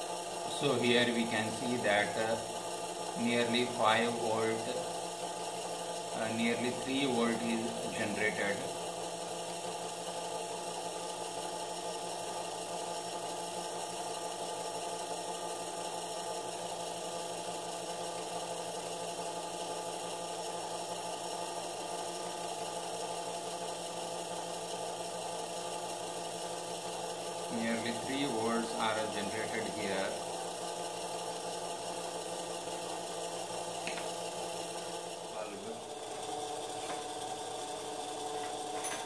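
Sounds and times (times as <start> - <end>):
mechanical whir and hum: 0.0 - 39.0.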